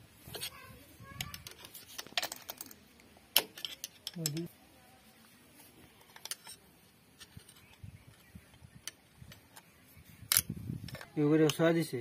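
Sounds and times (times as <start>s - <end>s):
metallic clicks and taps of tools: 1.2s - 4.5s, 10.3s - 11.6s.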